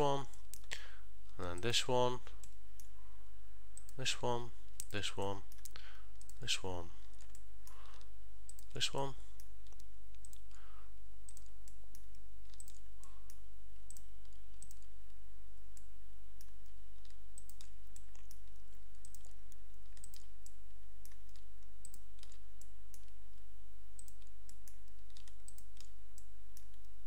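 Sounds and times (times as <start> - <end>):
low electrical hum: 0.0 - 27.0
computer mouse clicks: 3.8 - 4.0, 4.7 - 10.6, 11.3 - 14.9, 15.7 - 23.4, 24.0 - 26.9.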